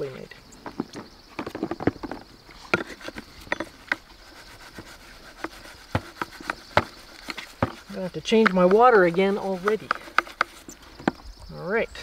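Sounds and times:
sponge scrubbing: 2.9s - 10.8s
perch knocking against bucket: 5.4s - 11.3s.

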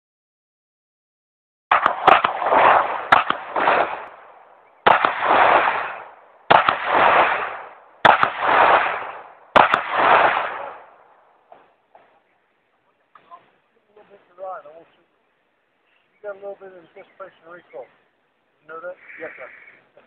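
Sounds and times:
handgun shots: 1.7s - 4.2s, 4.8s - 10.9s.

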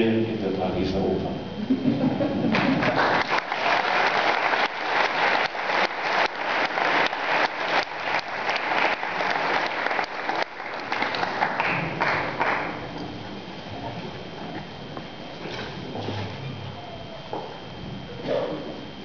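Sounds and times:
audience applauding: 2.5s - 12.9s.

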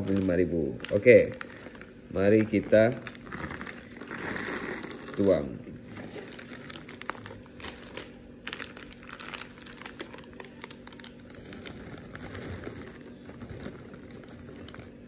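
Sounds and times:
plastic bag crinkling: 0.0s - 15.0s
almonds pouring into bowl: 2.2s - 5.4s, 11.4s - 14.9s.

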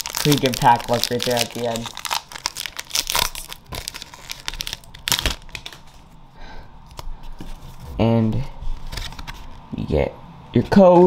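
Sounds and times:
cards rustling: 0.0s - 6.1s, 8.7s - 9.7s
foil wrapper crinkling: 0.0s - 6.1s.

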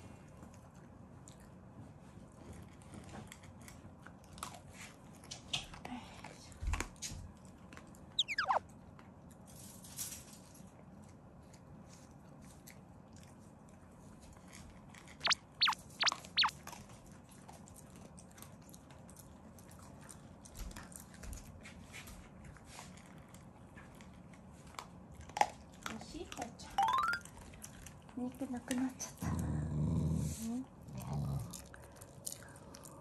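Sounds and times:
dog chewing food: 0.4s - 5.4s, 11.0s - 15.1s, 16.2s - 26.6s
high squeaks falling in pitch: 8.2s - 8.6s, 15.2s - 16.5s, 26.8s - 27.2s.

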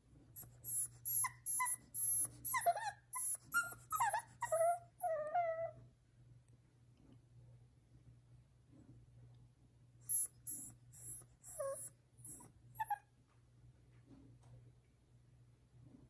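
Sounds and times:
puppy whining and whimpering: 0.4s - 5.8s, 10.1s - 13.1s.

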